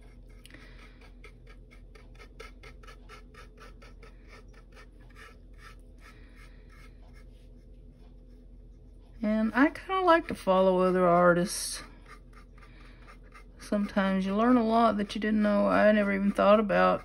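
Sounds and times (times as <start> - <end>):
paintbrush scratching on wood: 0.0 - 17.0.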